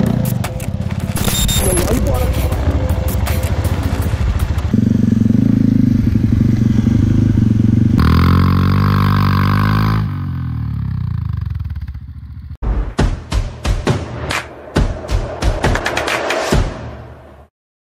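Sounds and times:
motorcycle engine revving: 1.9s - 12.6s.

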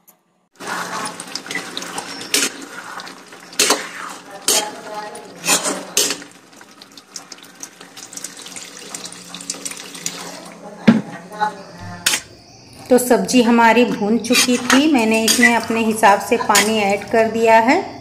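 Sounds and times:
ladle scraping a pot: 0.6s - 7.8s, 14.2s - 15.8s, 16.5s - 16.8s
water pouring: 0.6s - 10.7s.

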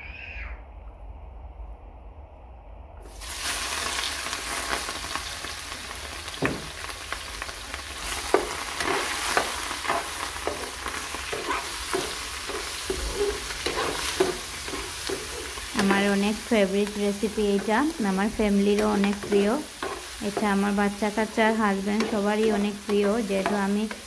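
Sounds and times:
shrimp sizzling in a frying pan: 3.1s - 24.0s
spatula scraping a pan: 8.0s - 17.8s, 18.6s - 24.0s.

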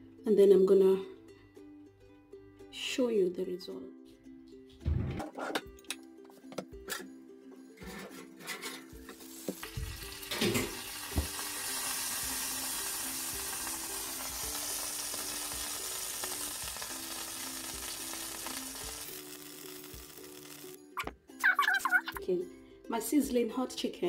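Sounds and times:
chicken sizzling in baking dish: 8.7s - 21.0s.

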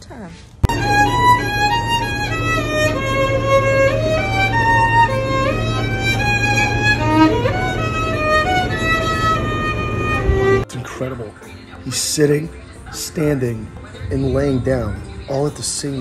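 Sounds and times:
steady low hum: 0.0s - 10.7s, 12.6s - 16.0s
solo violin melody: 0.6s - 10.7s.

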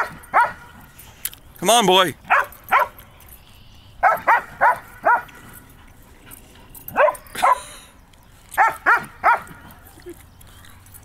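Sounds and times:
dog barking: 0.0s - 0.8s, 2.3s - 3.0s, 4.0s - 5.4s, 6.9s - 7.6s, 8.6s - 9.6s.

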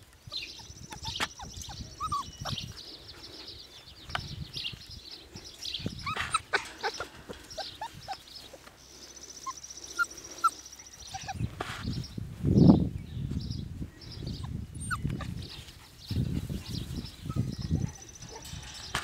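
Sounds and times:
puppies yipping and whimpering: 0.3s - 2.7s, 5.8s - 8.7s, 9.3s - 11.7s, 14.4s - 19.0s
puppy yelps: 0.6s - 2.6s, 6.0s - 8.2s, 9.4s - 11.5s, 14.8s - 15.3s
clicks and rustles: 18.0s - 19.0s.

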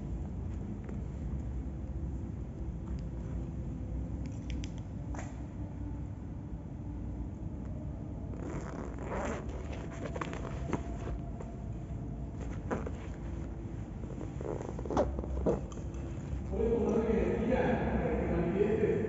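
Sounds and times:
steady low rumble: 0.0s - 19.0s
soft clicks and scuffs: 2.5s - 5.6s, 9.3s - 11.7s, 12.3s - 17.0s.

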